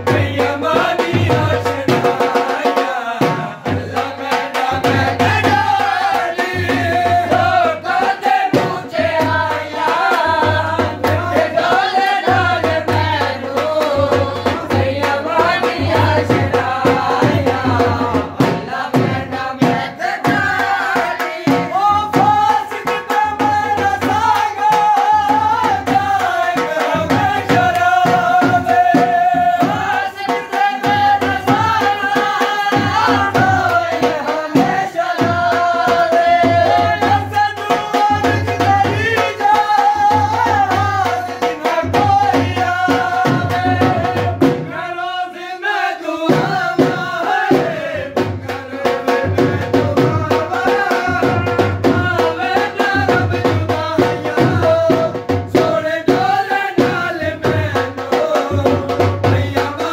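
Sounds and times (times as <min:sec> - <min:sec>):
drums beating brisk rhythm: 0:00.0 - 0:59.9.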